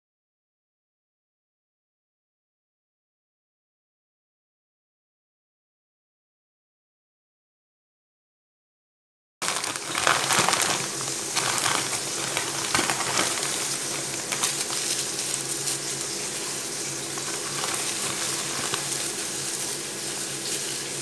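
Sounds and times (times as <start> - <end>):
dried leaves crackling: 9.4 - 21.0
plastic bag crinkling: 9.4 - 21.0
steady hiss: 9.5 - 21.0.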